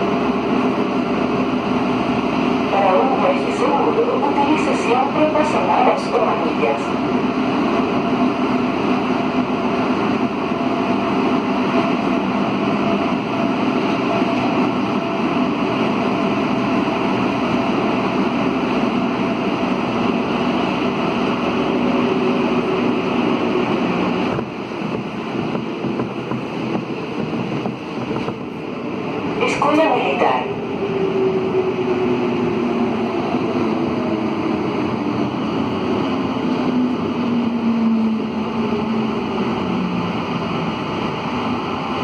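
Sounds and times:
metro train rushing through tunnel: 0.0s - 42.0s.

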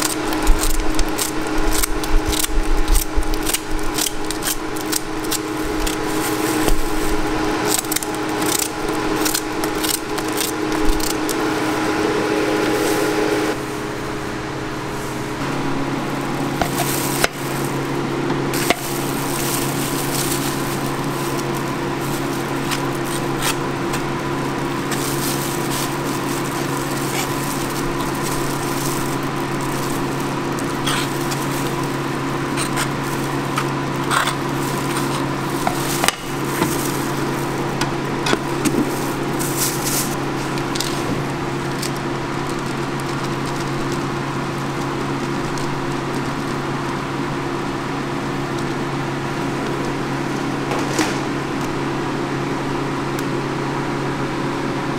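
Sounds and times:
utensils clicking and knocking: 0.0s - 11.4s, 18.3s - 41.0s
kitchen machinery humming: 0.0s - 54.9s
metal spatula scraping: 18.6s - 37.6s.

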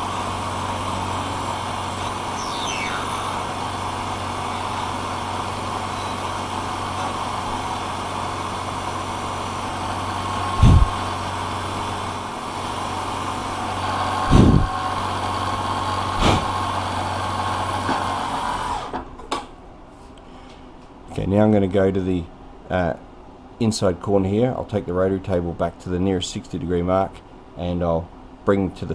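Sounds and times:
milling machine motor hum: 0.0s - 19.0s.

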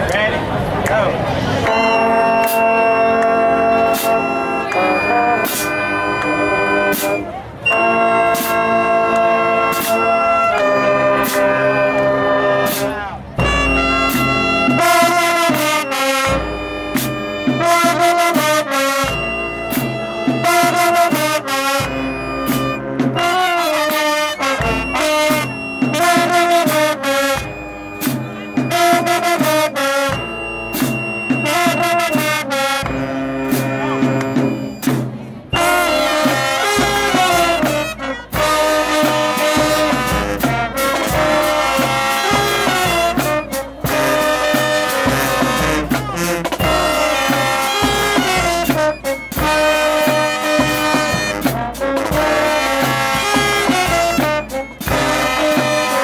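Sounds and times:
marching band playing: 0.0s - 56.0s
drum hits: 13.4s - 15.8s.

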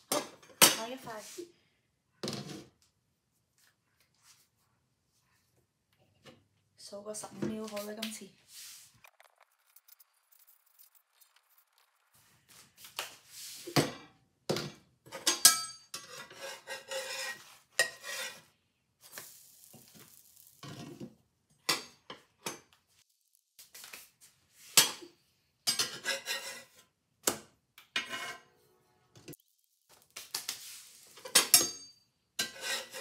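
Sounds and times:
spatula scraping skillet: 15.1s - 21.1s, 25.7s - 26.9s, 27.9s - 28.5s, 30.3s - 33.0s.

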